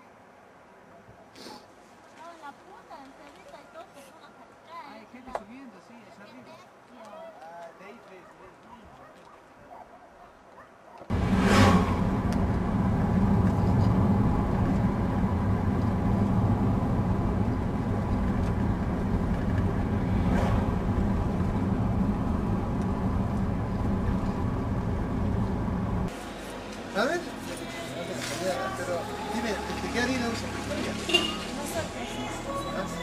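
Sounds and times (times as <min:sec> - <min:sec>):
brief whooshes: 0:11.1 - 0:12.8, 0:19.4 - 0:21.1
vehicle engine and road rumble: 0:11.1 - 0:33.0.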